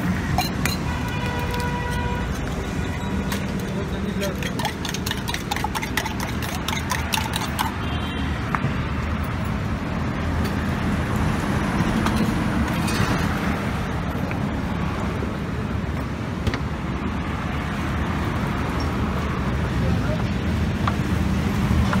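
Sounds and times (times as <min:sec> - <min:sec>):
road traffic rumble: 0:00.0 - 0:22.0
metal spoon clinking in tumbler: 0:00.4 - 0:00.8, 0:04.4 - 0:07.8.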